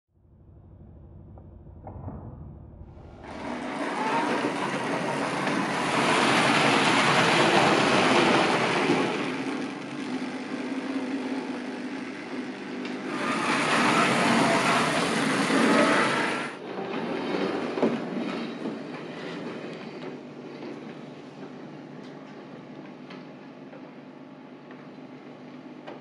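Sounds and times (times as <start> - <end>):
model train rattling on track: 3.3 - 12.4, 13.0 - 19.4.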